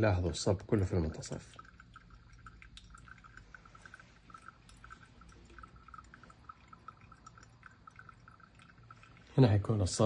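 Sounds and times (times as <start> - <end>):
hot water pouring onto coffee: 0.0 - 10.0.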